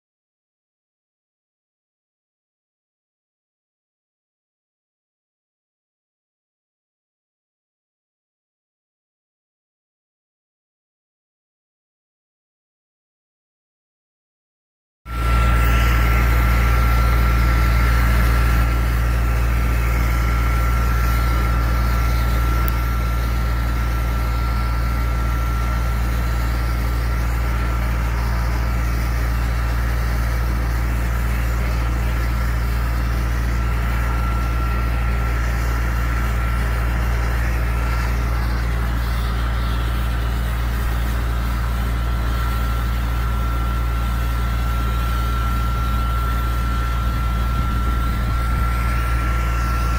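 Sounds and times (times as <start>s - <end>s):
high whine: 15.1s - 49.9s
sandblasting rig drone: 15.1s - 49.9s.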